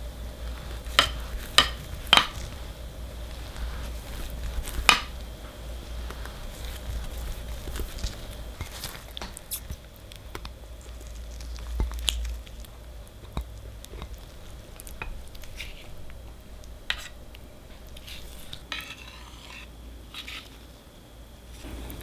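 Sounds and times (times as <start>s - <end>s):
spatula scraping ganache: 0.4s - 5.2s, 5.8s - 20.9s.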